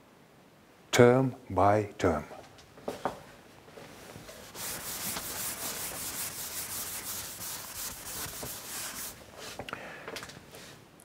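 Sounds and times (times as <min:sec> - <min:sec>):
eraser rubbing on blackboard: 0:04.3 - 0:09.5.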